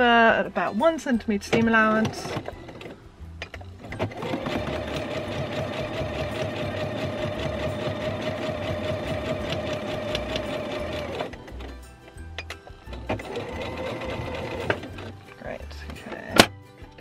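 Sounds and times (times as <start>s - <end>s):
sewing machine stitching: 3.8s - 11.3s, 12.9s - 15.1s.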